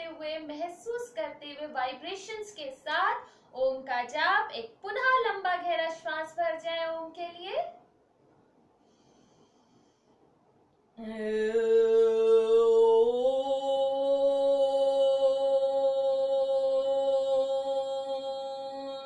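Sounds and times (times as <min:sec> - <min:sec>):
woman chanting om: 0:00.0 - 0:07.7, 0:11.0 - 0:19.0
breath in: 0:08.8 - 0:10.3.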